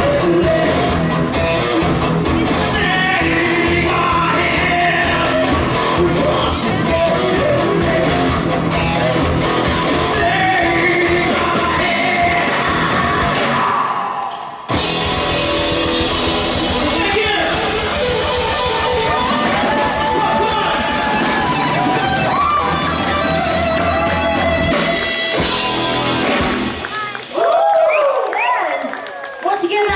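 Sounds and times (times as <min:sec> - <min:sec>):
person singing: 0:00.0 - 0:01.1, 0:02.3 - 0:08.4, 0:09.9 - 0:14.4
rock band playing: 0:00.0 - 0:27.4.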